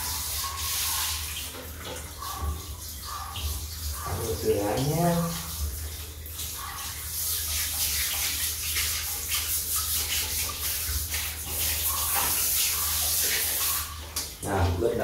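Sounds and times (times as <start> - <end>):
water spraying from a hose: 0.0 - 15.0.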